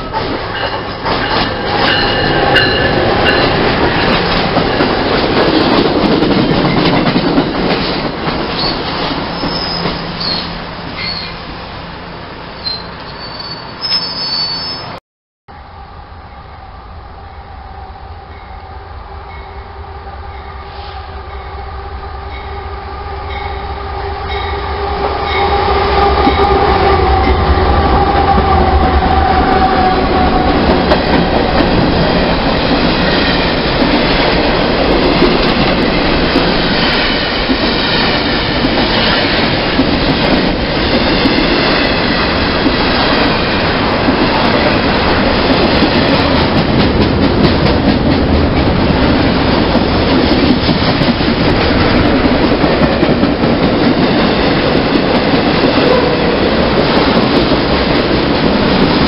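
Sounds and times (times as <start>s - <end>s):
locomotive drone: 15.5s - 59.0s.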